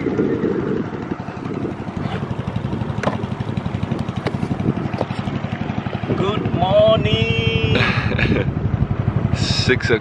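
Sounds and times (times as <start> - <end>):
boat engine running: 0.0 - 10.0
sharp knocks: 2.9 - 3.3.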